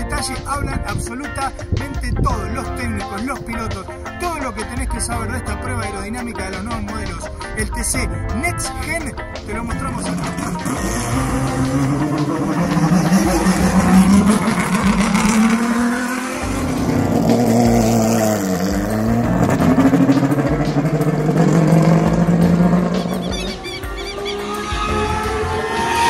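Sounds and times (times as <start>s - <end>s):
race car engines revving: 9.4s - 26.0s.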